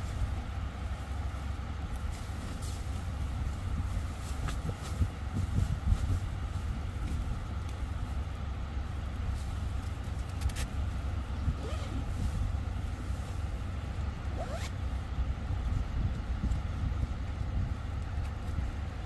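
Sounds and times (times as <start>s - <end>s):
wind buffeting microphone: 2.5s - 8.1s, 14.3s - 19.0s
brief scraping or zipping: 14.4s - 14.8s.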